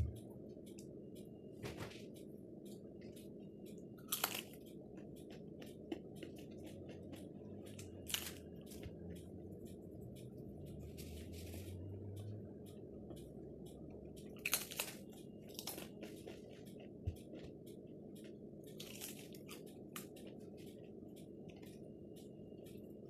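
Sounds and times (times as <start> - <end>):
crunchy flatbread chewing: 4.0 - 9.1, 14.4 - 17.6, 18.2 - 21.8.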